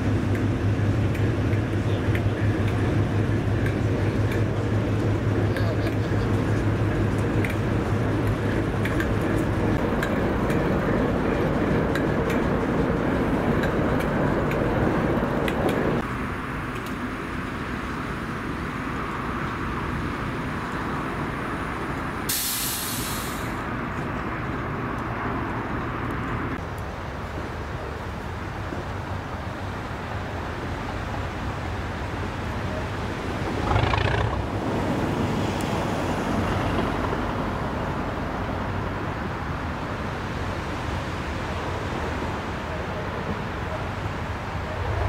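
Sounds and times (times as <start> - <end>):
diesel locomotive engine running: 0.0 - 45.0
short sharp hiss of air: 22.3 - 23.6.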